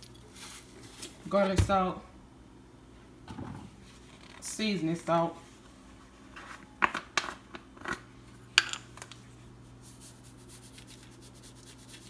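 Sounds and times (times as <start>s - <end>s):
seasoning shaker patter: 9.8s - 12.0s
utensil scraping in a bowl: 9.8s - 12.0s.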